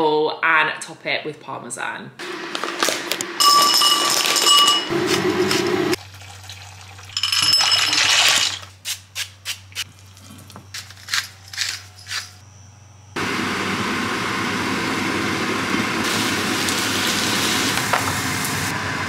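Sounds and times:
water pouring into a saucepan: 6.0s - 8.6s.

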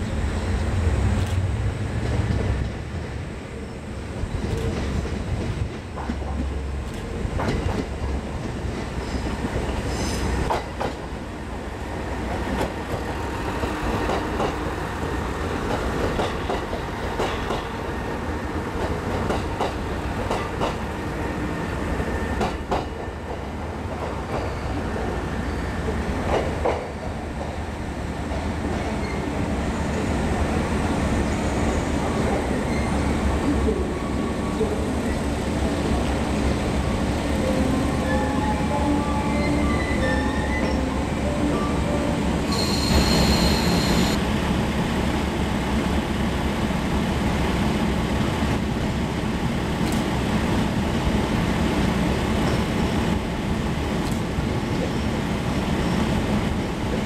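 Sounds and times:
train wheels clacking over rail joints: 15.7s - 17.8s, 18.8s - 20.8s.

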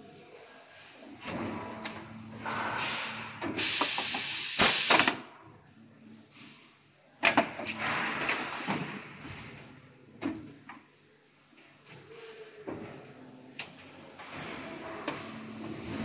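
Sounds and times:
compressed air hissing: 2.3s - 5.1s.

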